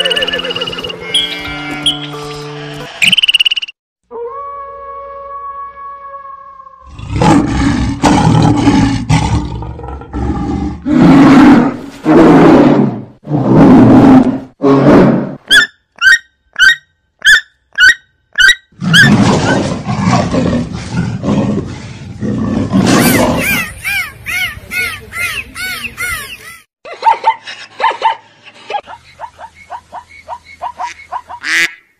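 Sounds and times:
animal roaring: 6.8s - 15.4s, 18.8s - 23.6s
animal yelping calls: 15.5s - 19.1s, 22.9s - 26.6s.

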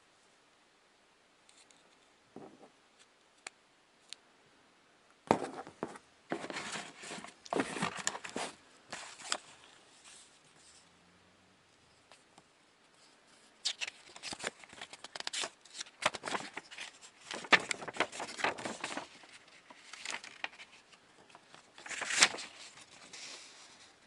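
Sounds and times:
foam packaging scraping and rustling: 6.3s - 10.3s, 21.6s - 24.0s.

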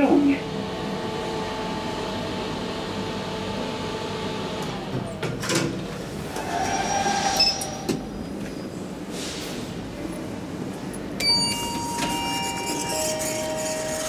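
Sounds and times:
elevator machinery hum: 0.0s - 14.0s
elevator door pushed open: 11.2s - 14.0s
higher ringing hum: 11.2s - 14.0s.

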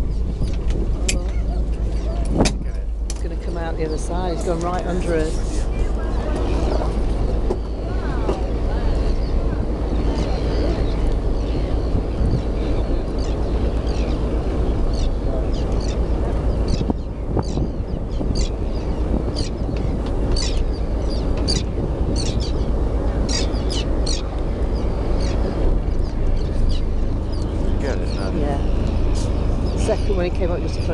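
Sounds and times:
birds chirping: 0.0s - 30.9s
low rumble: 0.0s - 30.9s.

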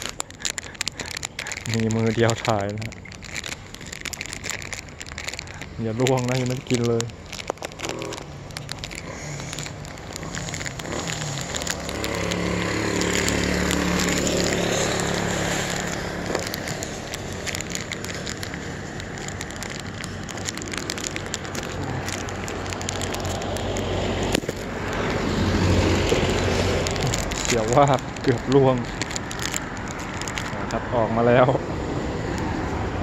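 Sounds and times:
plastic wrapper crinkling: 0.0s - 31.5s
road traffic passing: 0.0s - 33.0s.

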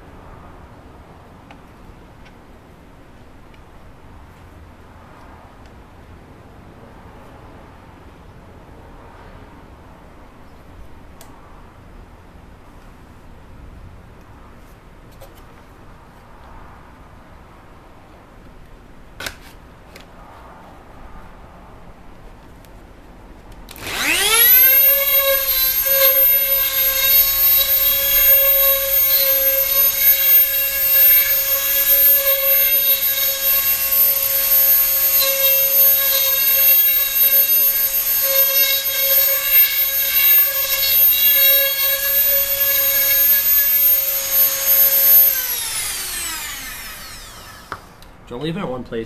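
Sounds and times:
bit cutting wood: 23.7s - 48.1s
rotary tool whining: 23.7s - 48.1s.

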